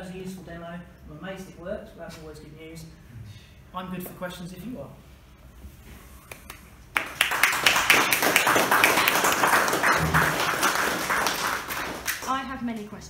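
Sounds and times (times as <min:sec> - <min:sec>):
audience applauding: 0:06.3 - 0:12.4.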